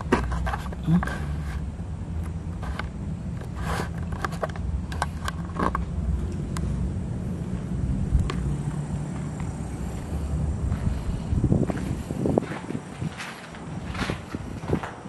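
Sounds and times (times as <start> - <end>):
steady low rumble: 0.0 - 15.0
footsteps: 9.1 - 15.0.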